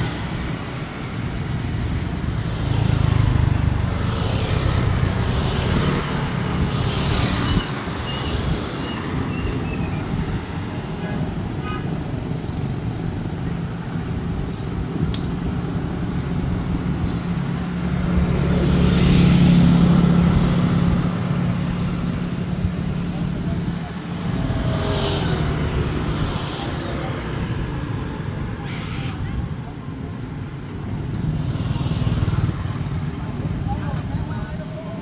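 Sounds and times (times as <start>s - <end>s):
road and traffic rumble: 0.0s - 35.0s
motor scooter passing: 2.4s - 9.7s, 16.8s - 28.3s.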